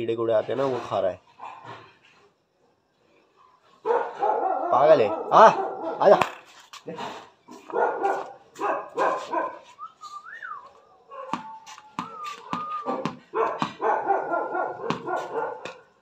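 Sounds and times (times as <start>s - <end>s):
dog barking: 3.8s - 6.2s, 7.5s - 9.8s, 10.9s - 16.0s
dog whining: 10.5s - 13.2s.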